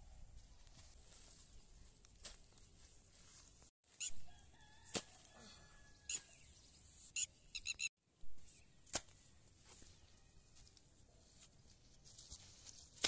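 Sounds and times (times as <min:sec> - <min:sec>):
birds chirping: 0:06.0 - 0:07.9.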